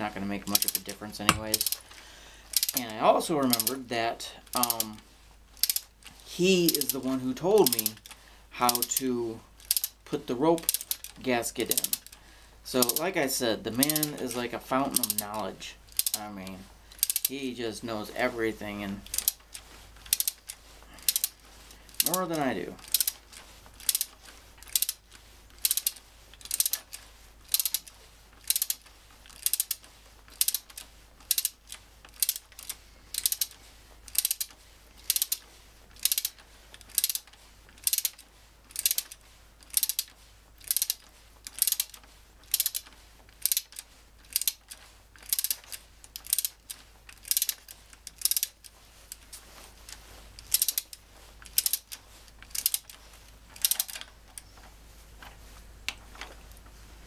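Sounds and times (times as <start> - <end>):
ratchet wrench clicking: 0.6 - 1.8, 2.5 - 2.8, 3.5 - 3.7, 4.5 - 5.0, 5.6 - 5.9, 7.6 - 9.0, 9.6 - 10.0, 10.6 - 12.2, 13.8 - 14.2, 15.9 - 16.2, 17.0 - 17.3, 19.0 - 22.2, 22.8 - 23.2, 23.8 - 25.0, 25.6 - 35.4, 36.0 - 49.2, 50.4 - 53.0, 53.6 - 54.0.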